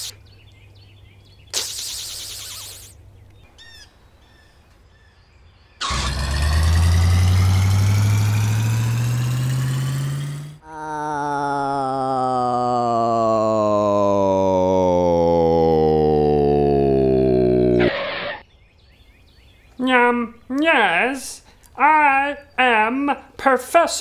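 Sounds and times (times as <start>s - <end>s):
faint bird chirps: 0.0s - 5.9s
cartoon engine revving up: 5.8s - 10.6s, 14.6s - 18.4s.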